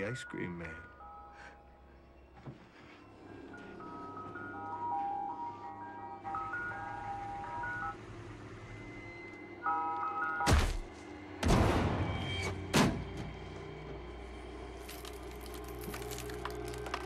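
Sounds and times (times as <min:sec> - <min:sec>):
ice cream truck chime jingle: 0:00.0 - 0:10.5
low music drone: 0:00.0 - 0:17.0.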